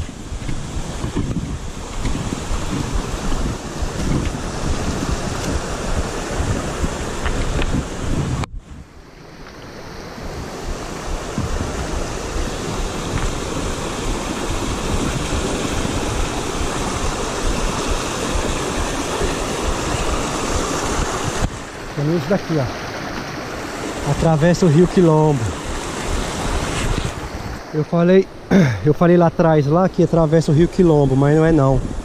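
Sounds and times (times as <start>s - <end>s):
wind buffeting microphone: 0.0s - 27.7s, 30.2s - 32.0s
stream rushing over boulders: 0.0s - 32.0s.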